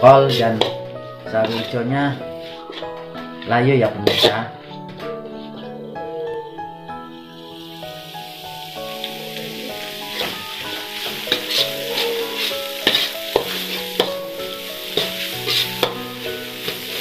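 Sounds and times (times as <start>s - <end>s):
food sizzling in hot oil: 0.0s - 3.3s, 4.0s - 4.8s, 7.1s - 17.0s
background music: 0.0s - 17.0s
metal spatula scraping wok: 0.3s - 5.8s, 8.9s - 17.0s.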